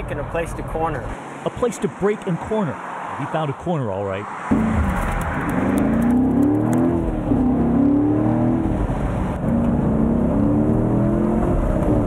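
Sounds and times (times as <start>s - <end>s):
car engine accelerating: 4.5s - 12.0s.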